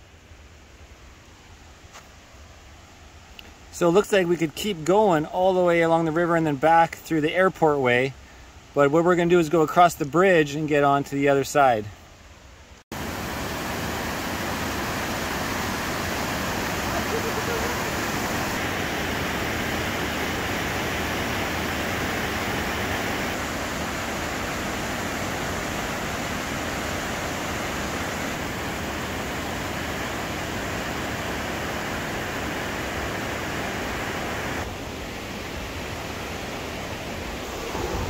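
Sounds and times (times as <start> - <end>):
river rapids rushing: 13.0 - 38.0.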